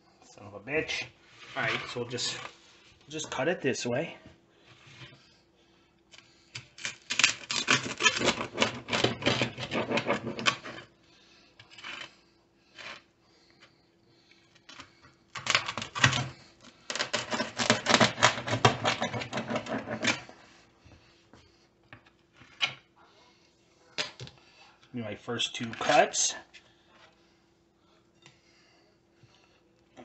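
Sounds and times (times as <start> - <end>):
pizza cutter crunching crust: 6.2 - 10.9, 11.6 - 13.0, 14.6 - 20.4.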